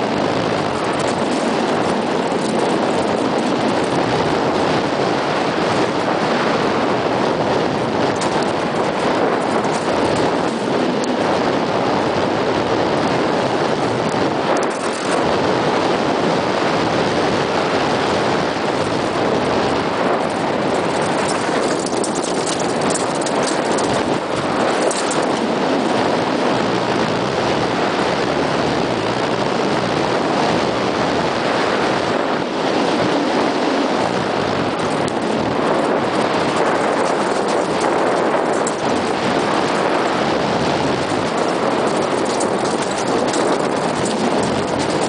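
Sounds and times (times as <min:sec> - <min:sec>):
bike tyres rumbling over gravel: 0:00.0 - 0:45.0
wind rushing over microphone: 0:00.0 - 0:45.0
stones knocking and rattling: 0:00.5 - 0:06.2, 0:06.9 - 0:11.2, 0:13.6 - 0:15.4, 0:18.0 - 0:25.6, 0:34.2 - 0:45.0.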